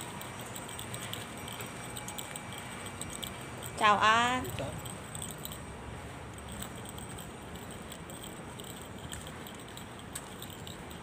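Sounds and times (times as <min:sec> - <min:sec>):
low street rumble: 0:00.0 - 0:11.0.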